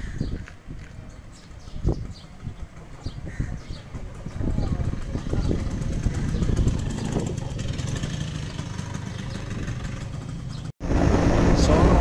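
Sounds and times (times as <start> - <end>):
scooter engine passing: 2.0 - 12.0.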